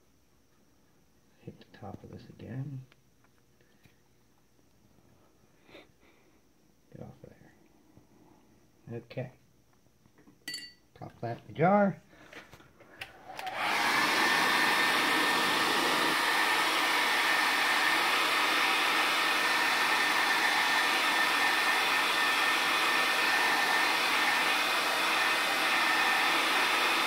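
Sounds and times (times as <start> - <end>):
hair dryer running: 13.0 - 27.0.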